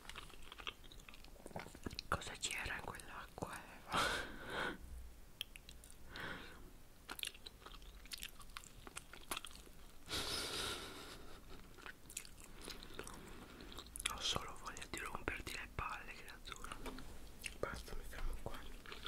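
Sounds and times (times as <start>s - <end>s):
chewing and biting food: 0.0s - 2.1s, 7.1s - 10.1s, 11.5s - 14.2s, 16.4s - 19.0s.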